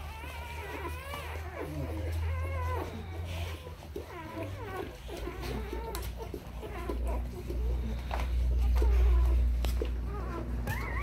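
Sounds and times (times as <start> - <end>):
puppies squeaking and whining: 0.0 - 11.0.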